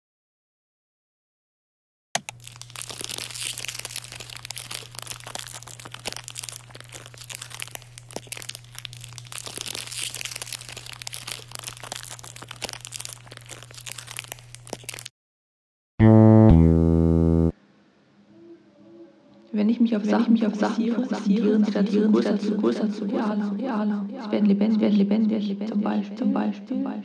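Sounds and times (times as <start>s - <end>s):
dense crackling and crinkling: 2.2s - 15.1s.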